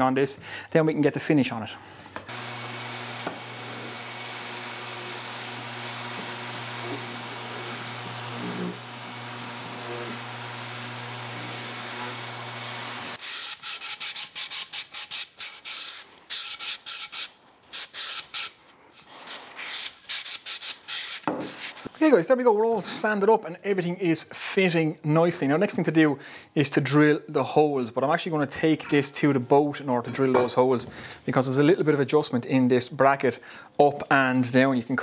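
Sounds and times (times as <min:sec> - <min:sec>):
orbital sander on wood: 0:02.3 - 0:13.3
hand sanding strokes on wood: 0:02.6 - 0:21.8.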